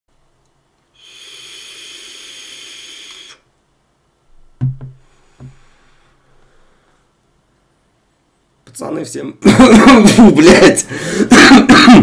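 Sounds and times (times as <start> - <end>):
throaty bursts of breath: 1.0 - 3.5
vape hissing whistle: 1.0 - 3.5.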